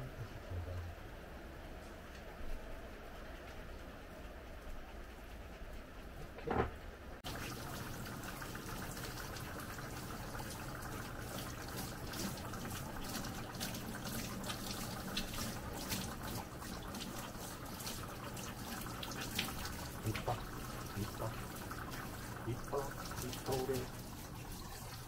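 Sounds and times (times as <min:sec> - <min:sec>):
shower head spraying water: 0:07.3 - 0:25.0.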